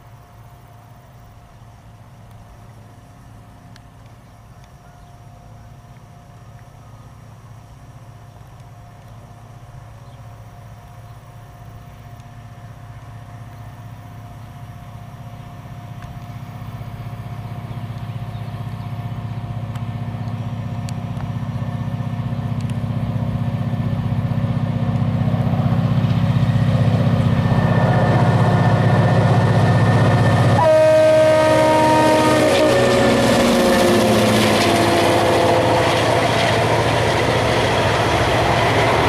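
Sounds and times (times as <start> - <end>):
diesel locomotive engine rumble: 0.0 - 39.0
locomotive horn chord: 28.3 - 37.0.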